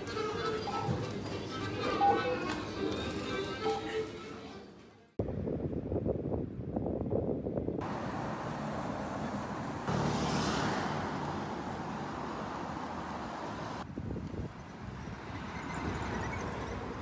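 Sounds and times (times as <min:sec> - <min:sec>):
street traffic: 0:00.0 - 0:05.1, 0:06.8 - 0:17.0
wind on microphone: 0:05.2 - 0:07.9, 0:13.8 - 0:17.0.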